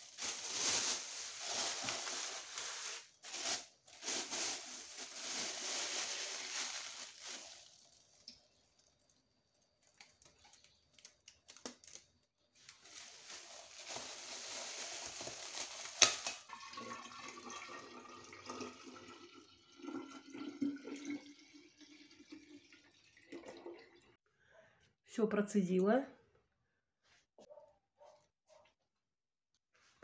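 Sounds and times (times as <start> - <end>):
wine pouring into glass jar: 16.4 - 24.1.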